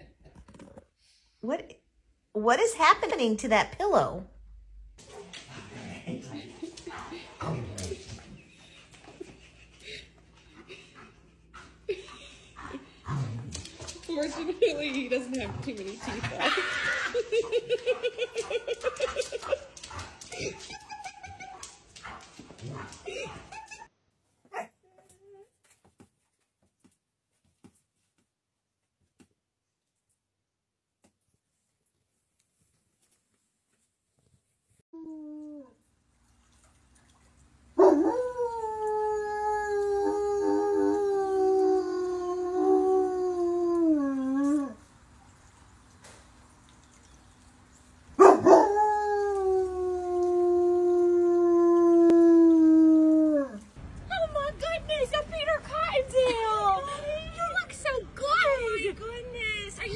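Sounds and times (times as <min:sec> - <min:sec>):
dog howling: 0:48.2 - 0:53.7.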